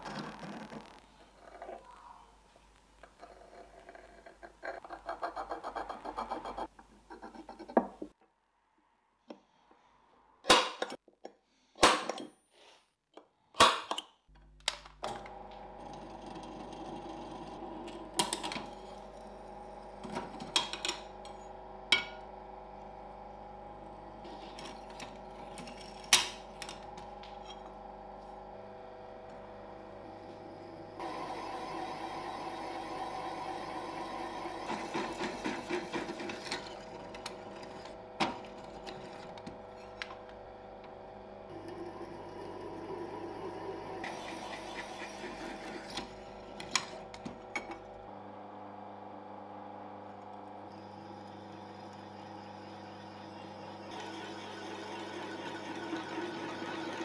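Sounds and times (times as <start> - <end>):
drill press motor humming: 15.1 - 57.0.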